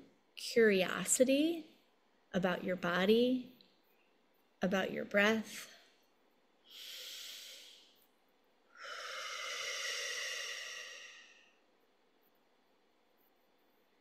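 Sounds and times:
woman breathing: 5.6s - 11.9s.

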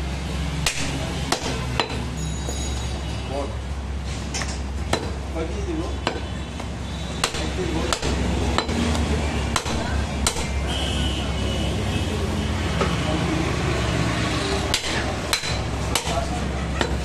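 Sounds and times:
street traffic rumbling: 0.0s - 17.0s
cleaver chopping on wooden block: 0.6s - 2.0s, 6.0s - 6.3s, 7.2s - 10.6s, 14.7s - 17.0s.

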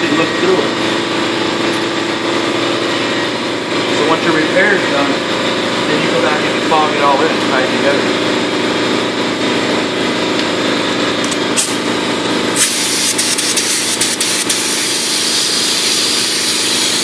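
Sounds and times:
paint spray gun hissing: 11.6s - 17.0s.

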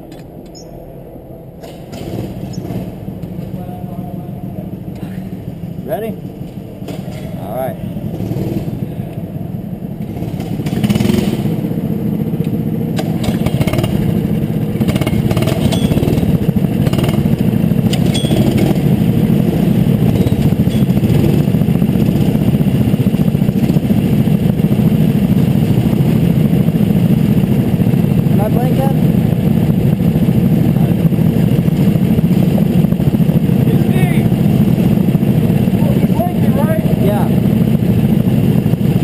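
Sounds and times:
go-kart engine running: 0.0s - 39.0s
kart knocks and rattles: 1.6s - 3.6s, 6.8s - 7.4s, 10.1s - 11.5s, 12.9s - 14.2s, 14.8s - 21.4s.

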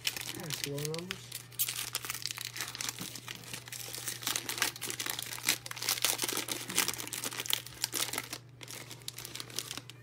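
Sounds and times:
wrappers and cards crinkling: 0.0s - 10.0s.

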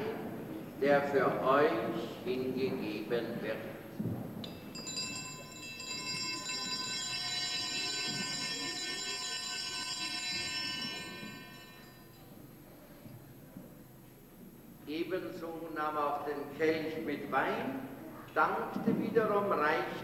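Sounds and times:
small bells ringing: 4.4s - 14.3s.

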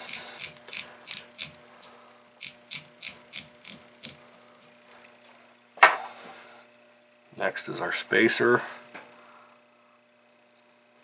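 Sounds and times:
fishing reel drag clicking: 0.1s - 1.6s.

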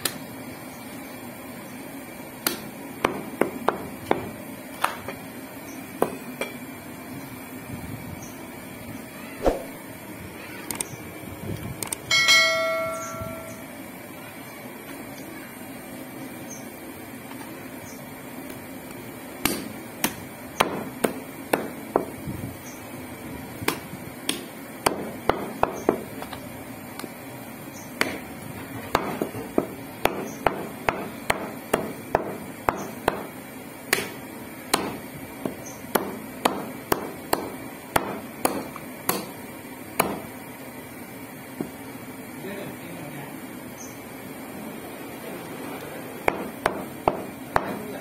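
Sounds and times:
cleaver chopping meat and bone: 2.4s - 5.1s, 19.4s - 22.2s, 23.6s - 26.4s, 28.0s - 28.3s, 28.9s - 39.4s, 40.0s - 40.3s, 46.2s - 47.9s.

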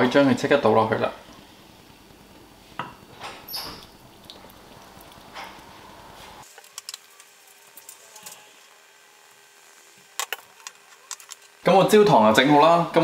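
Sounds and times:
faint squeaks: 3.2s - 4.0s.

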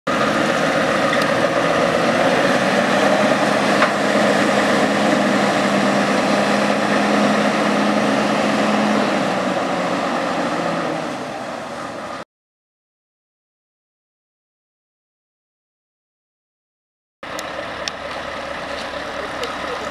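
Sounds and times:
diesel truck engine running: 0.1s - 12.2s, 17.2s - 19.9s.

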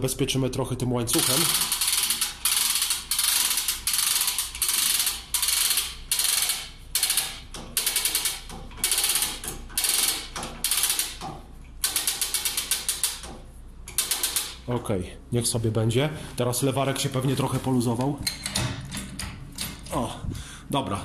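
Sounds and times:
hoist chain rattling: 1.1s - 13.3s, 13.9s - 14.6s
ratcheting pawl clicks: 1.1s - 14.6s.

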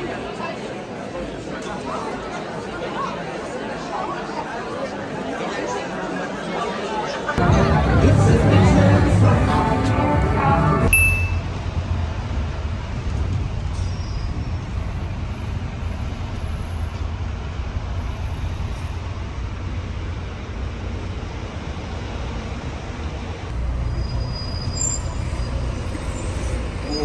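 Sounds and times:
moving vehicle rumble: 7.1s - 27.0s.

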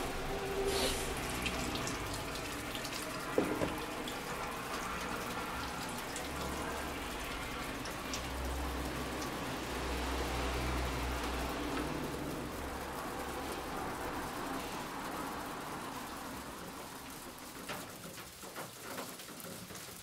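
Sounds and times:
drips: 0.0s - 20.0s
steady rain: 0.0s - 20.0s.

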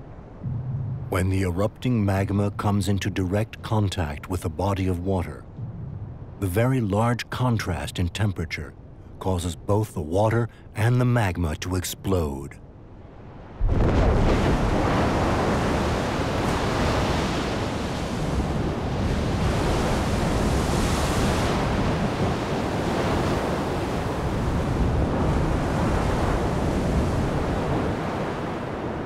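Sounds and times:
deep rumble: 0.4s - 2.6s, 5.4s - 6.5s
churning rushing water: 13.2s - 29.0s.

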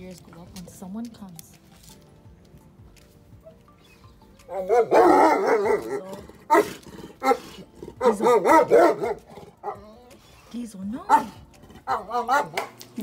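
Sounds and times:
large dog barking: 4.5s - 10.0s, 11.1s - 12.8s.

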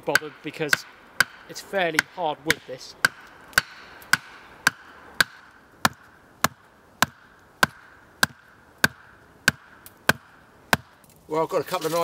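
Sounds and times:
axe head knocking wooden stake: 0.1s - 11.0s.

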